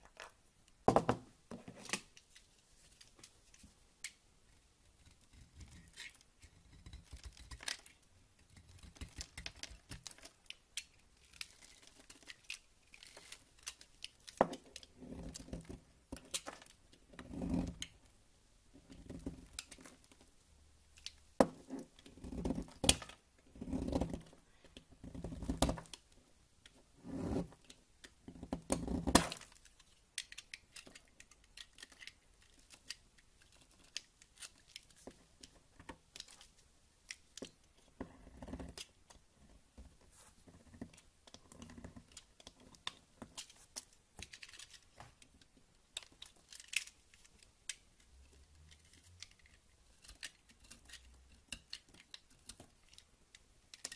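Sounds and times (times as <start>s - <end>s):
knife shaving soap: 4.9s - 17.9s, 21.9s - 25.8s, 28.3s - 35.0s, 48.6s - 53.9s.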